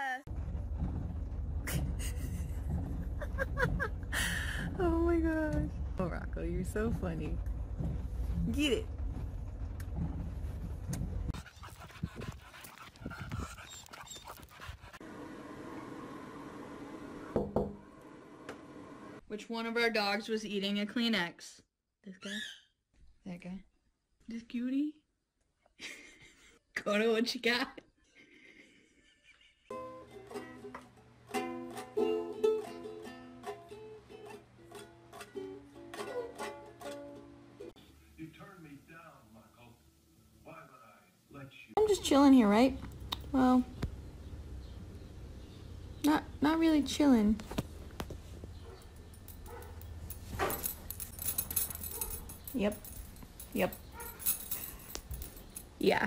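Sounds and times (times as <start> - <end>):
moving car rumble: 0.3 - 11.5
dog panting: 11.3 - 15.0
ukulele strumming: 29.7 - 37.6.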